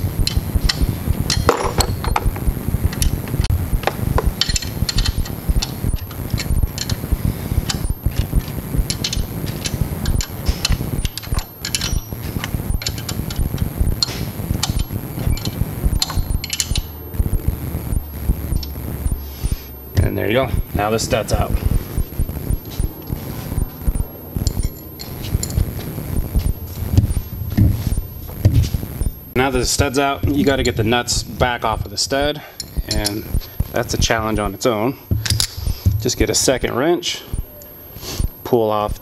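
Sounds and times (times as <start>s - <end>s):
ratcheting wrench clicking: 4.4s - 7.0s, 8.9s - 16.9s.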